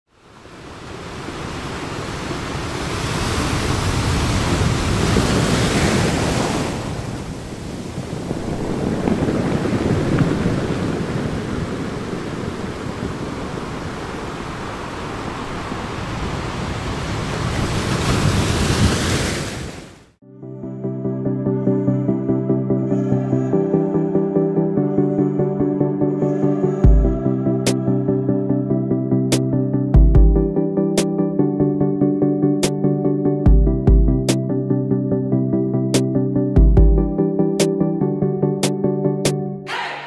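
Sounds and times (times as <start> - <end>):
ocean surf breaking on beach: 0.1 - 20.2.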